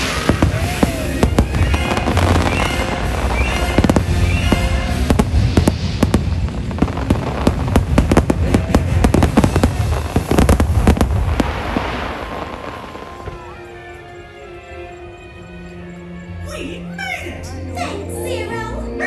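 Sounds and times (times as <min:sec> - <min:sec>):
music from loudspeakers: 0:00.0 - 0:06.1
fireworks bursting and crackling: 0:00.0 - 0:14.0.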